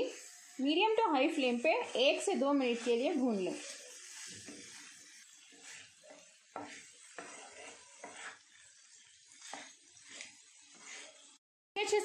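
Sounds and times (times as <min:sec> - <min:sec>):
spatula scraping a pan: 0:00.0 - 0:11.4
chicken sizzling in a pan: 0:00.0 - 0:12.0.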